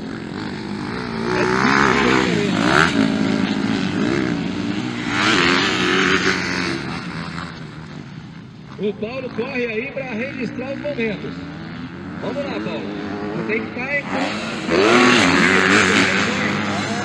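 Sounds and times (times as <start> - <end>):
dirt bikes revving: 0.0 - 17.0.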